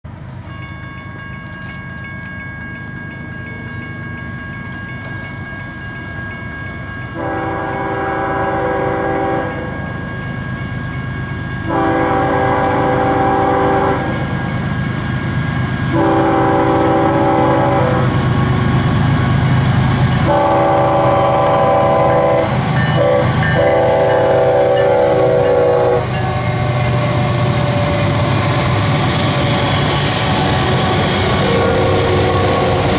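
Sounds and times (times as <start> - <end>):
diesel locomotive rumble: 0.1 - 32.9
train air horn blasts: 7.2 - 9.9, 11.6 - 14.4, 15.9 - 18.2, 20.2 - 27.1, 30.3 - 32.9.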